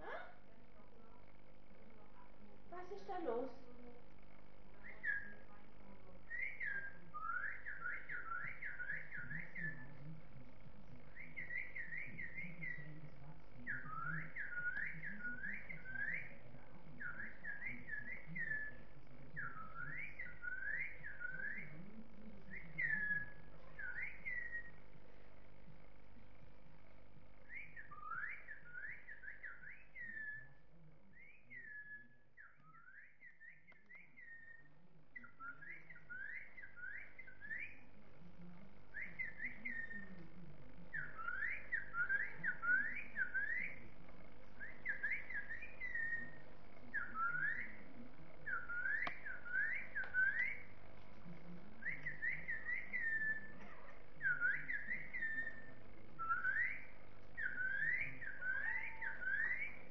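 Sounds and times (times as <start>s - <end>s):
whistling chirping notes: 6.3s - 10.0s, 13.7s - 16.4s, 22.5s - 24.8s, 27.5s - 30.5s, 40.9s - 43.9s, 44.6s - 47.8s, 48.4s - 50.7s, 51.8s - 59.9s.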